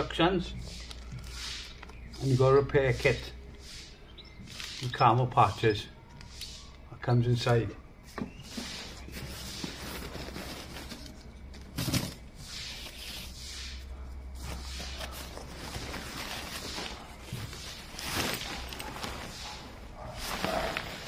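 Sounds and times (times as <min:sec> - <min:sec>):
sharp handling noise: 0:08.1 - 0:21.0
fabric rustling and crinkling: 0:08.5 - 0:21.0.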